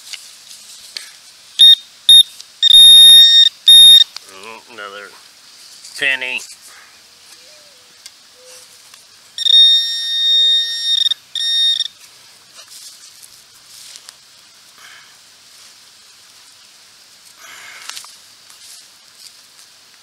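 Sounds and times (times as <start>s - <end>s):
faint low beeps: 1.6s - 4.1s, 9.4s - 11.9s
metal detector high tone: 1.6s - 4.1s, 9.4s - 12.0s
scraping rustle: 5.1s - 7.4s, 12.0s - 14.2s.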